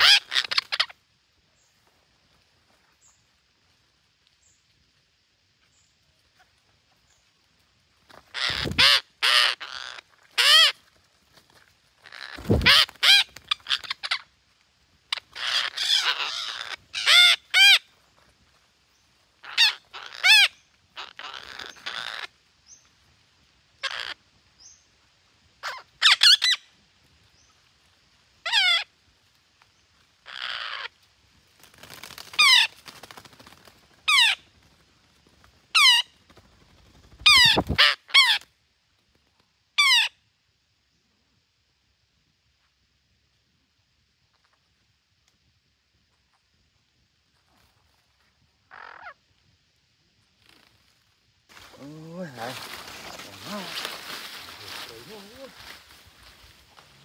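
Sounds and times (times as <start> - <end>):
parakeets calling: 0.0 - 0.9, 8.3 - 10.8, 12.0 - 14.2, 15.1 - 17.8, 19.4 - 22.3, 23.8 - 24.8, 28.4 - 28.9, 30.2 - 30.9, 34.1 - 34.4, 37.2 - 38.4, 48.7 - 49.2.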